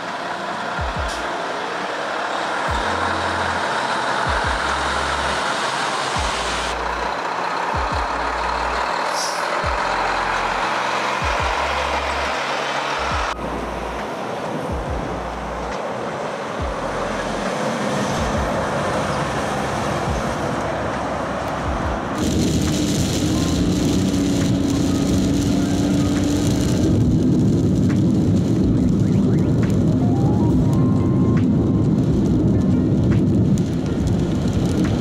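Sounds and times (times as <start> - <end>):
truck engine and road noise: 0.0 - 35.0
music with bass and kick drum: 0.8 - 1.3, 2.7 - 3.1, 4.3 - 5.0, 6.2 - 6.8, 7.8 - 8.3, 9.6 - 10.3, 11.2 - 11.9, 14.7 - 15.8, 16.6 - 17.4, 18.2 - 18.6, 21.6 - 29.9.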